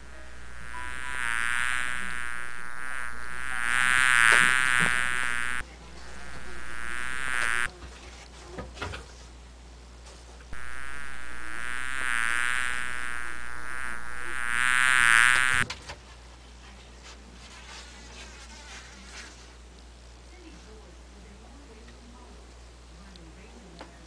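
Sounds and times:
fly buzzing: 0.0 - 7.7, 10.6 - 15.6.

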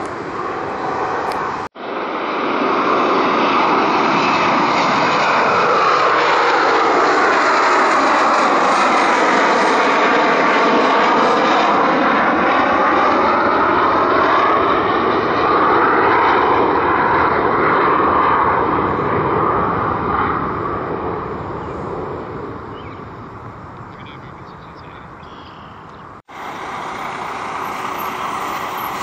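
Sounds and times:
jet engines at takeoff power: 0.0 - 29.0.

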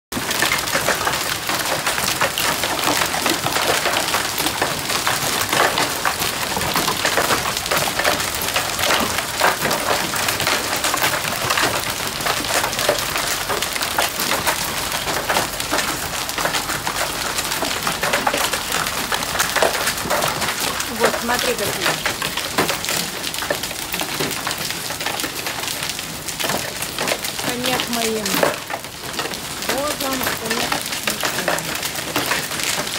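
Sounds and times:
hailstones pelting pavement and cars: 0.1 - 32.9
rain: 0.1 - 32.9.

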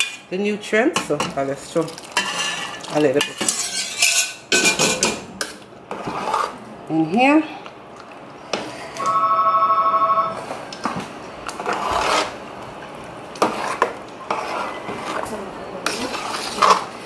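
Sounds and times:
metal spoon scraping a pot: 2.2 - 5.0, 13.4 - 17.0.

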